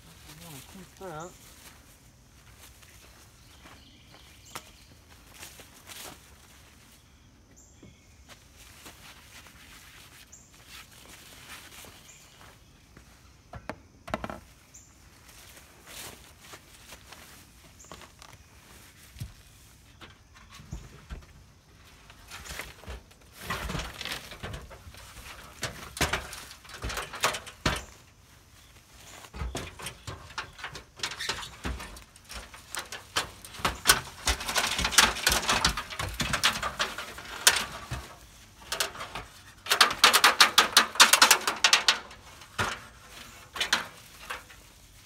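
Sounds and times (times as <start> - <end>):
rustling: 14.4 - 45.0
metal ladder clattering and scraping: 19.9 - 28.2, 29.0 - 45.0.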